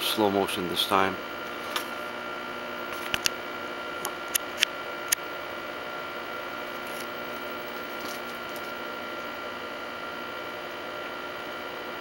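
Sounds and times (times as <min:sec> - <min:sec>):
recording equipment hiss and hum: 0:00.0 - 0:12.0.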